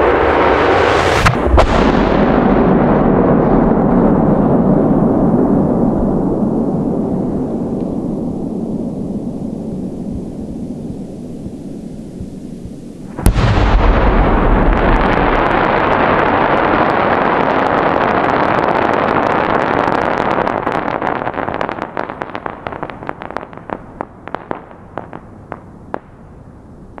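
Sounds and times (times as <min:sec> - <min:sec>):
firework stars crackling: 0:10.0 - 0:27.0
firework shell bursting with boom: 0:13.1 - 0:16.4.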